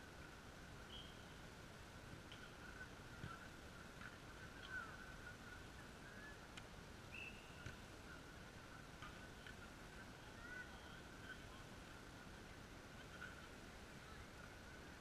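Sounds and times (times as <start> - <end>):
steady high hum: 0.0 - 15.0
faint chirps and clicks: 2.2 - 12.0.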